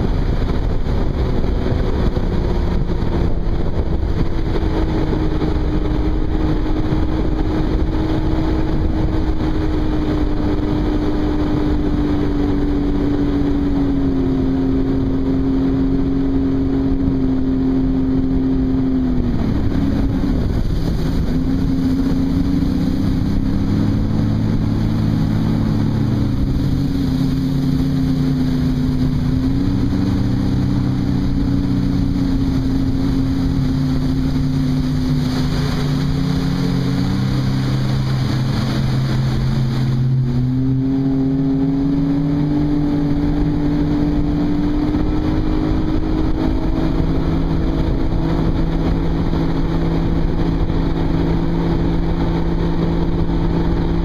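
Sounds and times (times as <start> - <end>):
watercraft engine running: 0.0 - 54.0.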